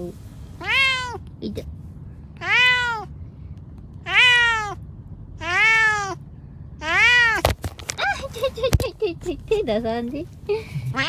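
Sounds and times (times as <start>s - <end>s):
cat meowing: 0.6s - 1.2s, 2.4s - 3.1s, 4.0s - 4.8s, 5.4s - 6.2s, 6.8s - 7.5s.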